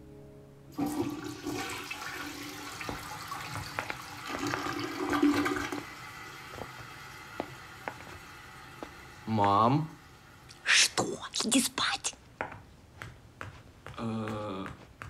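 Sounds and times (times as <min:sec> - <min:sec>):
water rushing: 0:00.8 - 0:07.8.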